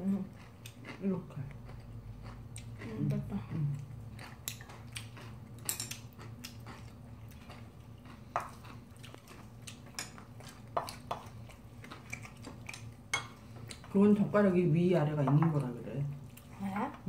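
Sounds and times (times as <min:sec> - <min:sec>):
utensils clinking on steel bowl: 0:05.6 - 0:06.1.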